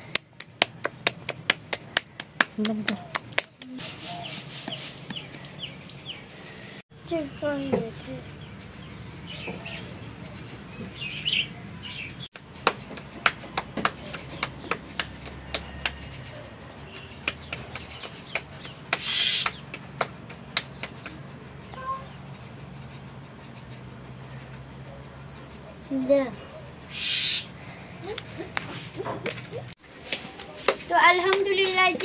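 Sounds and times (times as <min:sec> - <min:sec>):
dough slapped between palms: 0:00.0 - 0:03.8, 0:12.3 - 0:16.0, 0:17.2 - 0:21.2
faint birds chirping: 0:00.0 - 0:30.0.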